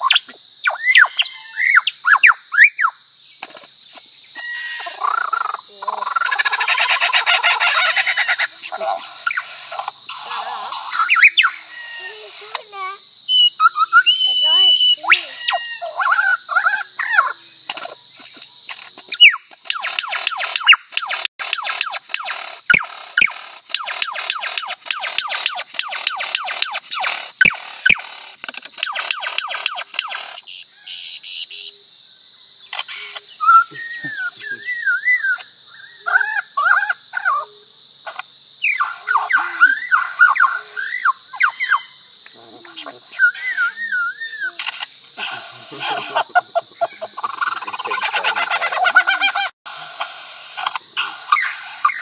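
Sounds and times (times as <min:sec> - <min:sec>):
lyrebird singing mimicked calls: 0:00.0 - 0:03.0, 0:03.8 - 0:31.7, 0:38.1 - 0:52.0
high insect drone: 0:00.0 - 0:52.0
steady high hiss: 0:21.9 - 0:31.9, 0:47.4 - 0:51.9.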